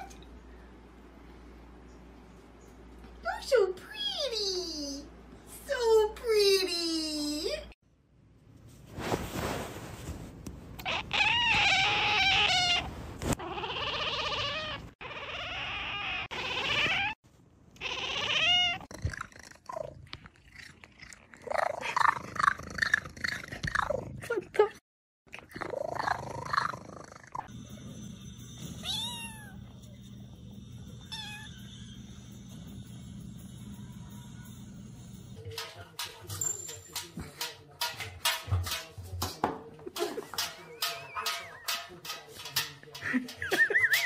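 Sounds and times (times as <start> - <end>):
cats meowing and yowling: 10.8 - 17.2, 17.8 - 18.9, 31.1 - 32.0.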